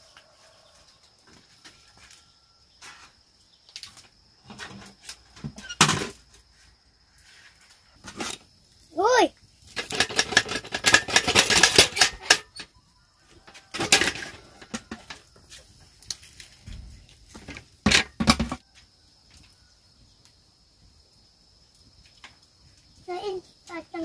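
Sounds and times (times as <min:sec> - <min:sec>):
hard objects clattering: 0:09.7 - 0:12.7, 0:13.7 - 0:15.3.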